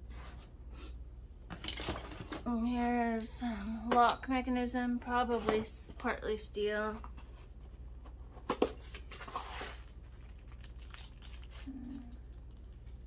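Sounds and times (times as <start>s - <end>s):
plastic bag crinkling: 9.2s - 13.0s.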